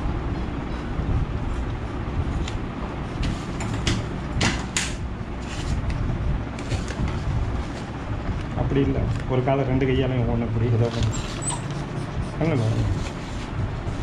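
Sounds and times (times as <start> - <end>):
low rumble: 5.0 - 11.1.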